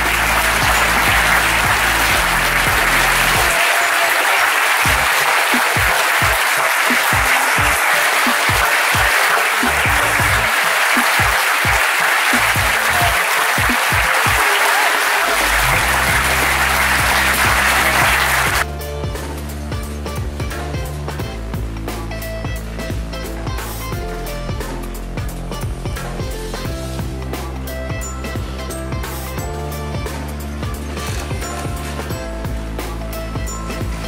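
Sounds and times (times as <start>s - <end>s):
audience applauding: 0.0s - 18.7s
music: 0.0s - 34.0s.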